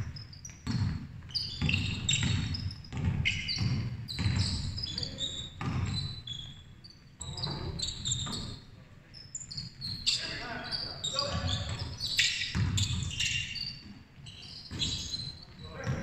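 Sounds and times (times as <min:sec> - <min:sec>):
sneakers squeaking on floor: 0:00.0 - 0:16.0
basketball thumping on wooden court: 0:00.6 - 0:04.8, 0:05.6 - 0:06.0, 0:12.5 - 0:13.1.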